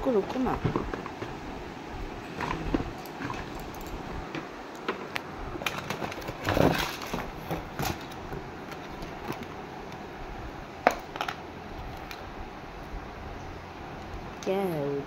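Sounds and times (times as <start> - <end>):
scraping rustle: 5.0 - 9.5.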